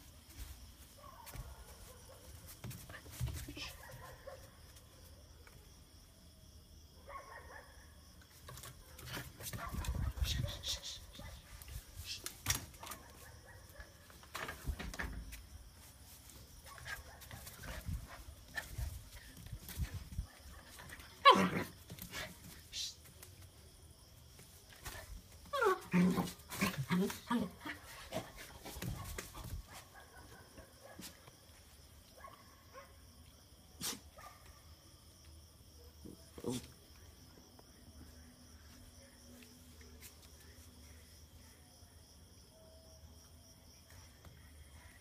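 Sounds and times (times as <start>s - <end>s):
puppy barking: 7.0s - 7.8s.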